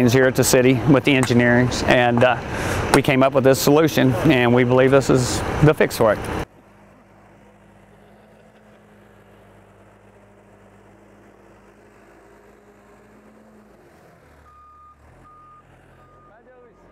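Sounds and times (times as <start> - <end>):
diesel engine running: 0.0 - 16.9
reversing alarm beeping: 14.4 - 16.4.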